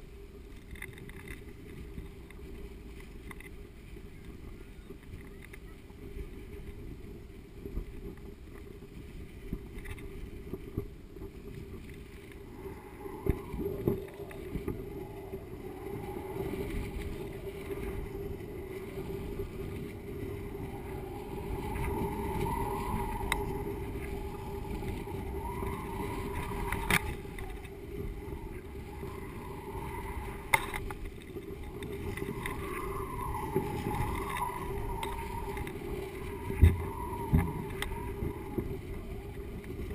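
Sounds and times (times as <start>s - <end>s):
wind rumbling over camera: 0.0s - 39.9s
wavering whistle: 12.4s - 18.6s, 19.8s - 39.6s.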